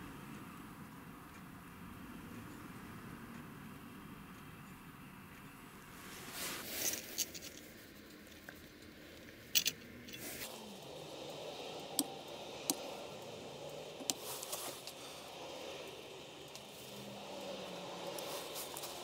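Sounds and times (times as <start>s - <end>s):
handling noise: 6.2s - 10.6s.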